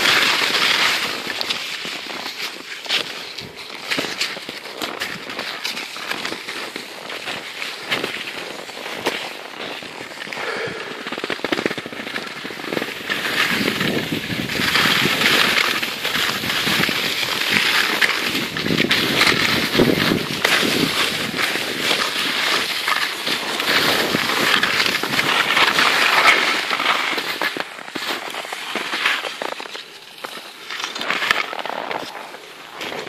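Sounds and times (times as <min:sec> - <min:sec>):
skis and boots crunching on snow: 0:00.0 - 0:33.0.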